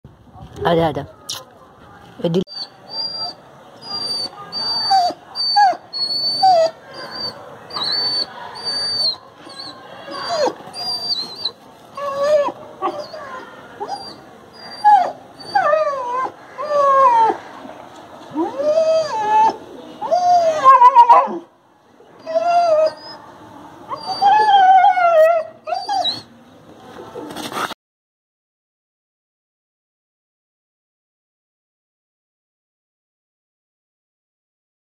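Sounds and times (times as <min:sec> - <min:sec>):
dog whining: 0:02.5 - 0:17.4, 0:18.4 - 0:21.4, 0:22.2 - 0:23.2, 0:23.9 - 0:26.3
dog yelping: 0:02.5 - 0:17.4, 0:23.9 - 0:26.3.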